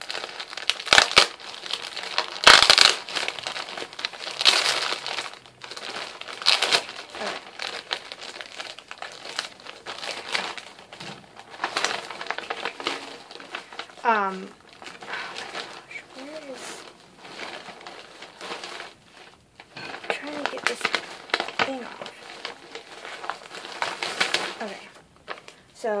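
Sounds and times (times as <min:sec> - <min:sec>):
plastic bag crinkling and tearing: 0:00.0 - 0:25.7.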